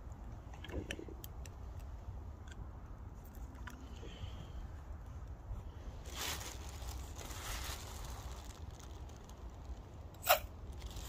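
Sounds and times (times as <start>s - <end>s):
plastic bag rustling: 6.0s - 11.0s.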